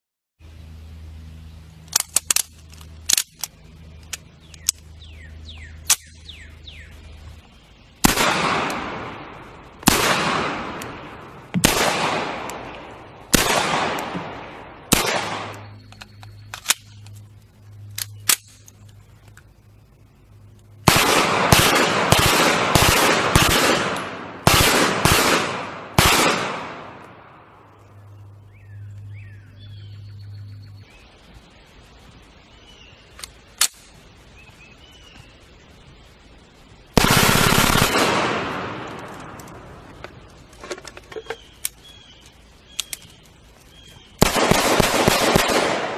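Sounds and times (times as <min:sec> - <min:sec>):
sharp clicks: 0:01.8 - 0:04.9, 0:14.9 - 0:20.8, 0:37.0 - 0:45.8
pistol shots echoing: 0:08.0 - 0:15.7, 0:20.8 - 0:27.3, 0:37.0 - 0:39.4, 0:44.2 - 0:45.9.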